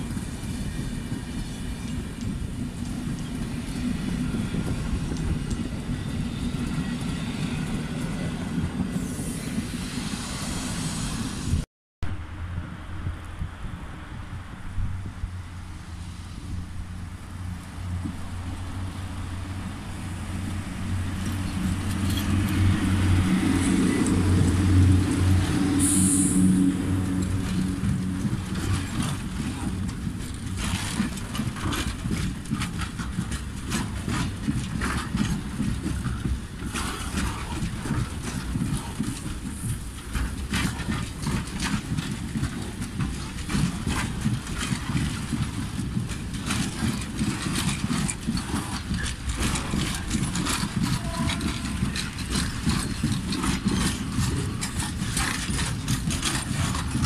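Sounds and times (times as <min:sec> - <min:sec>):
wheels clattering over rail joints: 0:00.0 - 0:10.0, 0:15.2 - 0:57.0
electric locomotive hum: 0:00.0 - 0:57.0
freight wagons rumbling: 0:00.0 - 0:57.0
high hiss: 0:08.9 - 0:11.7.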